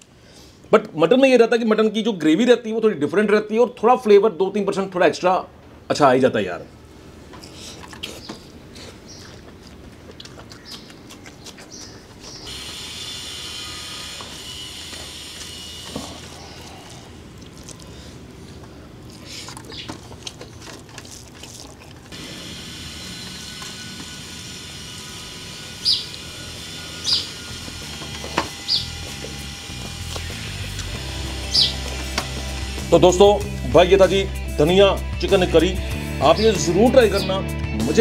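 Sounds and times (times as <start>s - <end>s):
chewing: 7.4s - 12.7s, 14.9s - 22.2s.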